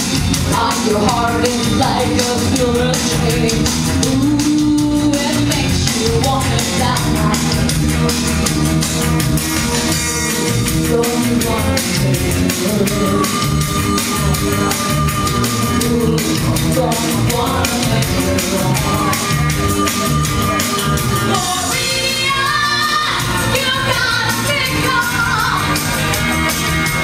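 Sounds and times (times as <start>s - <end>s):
loud rock music: 0.0s - 27.0s
woman singing into microphone: 0.4s - 7.9s, 10.6s - 19.5s, 21.3s - 25.8s.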